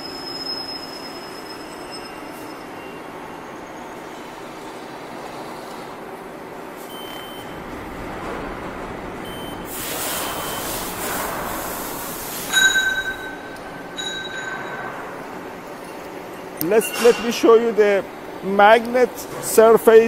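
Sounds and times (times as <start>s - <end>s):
machining centre running: 2.6s - 20.0s
short faint beeps: 6.9s - 7.5s, 9.2s - 10.9s
loud high-pitched squeal: 9.2s - 14.9s
rush of hiss: 9.7s - 13.2s.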